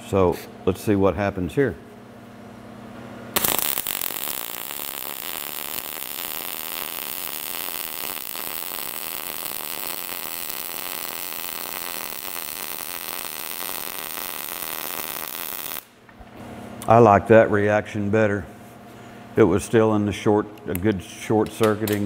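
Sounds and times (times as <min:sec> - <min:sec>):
welding arc crackling: 0:03.4 - 0:16.0.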